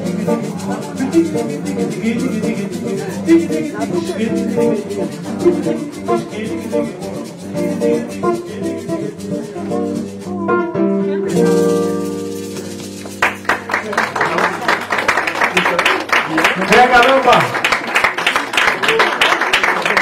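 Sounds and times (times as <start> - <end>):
acoustic guitar playing chords: 0.0 - 15.2
hand shaker rhythm: 0.0 - 20.0.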